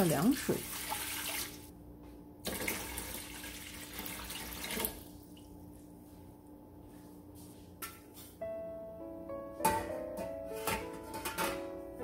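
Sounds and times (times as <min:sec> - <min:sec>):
water pouring into metal pot: 0:00.3 - 0:01.7, 0:02.5 - 0:05.0.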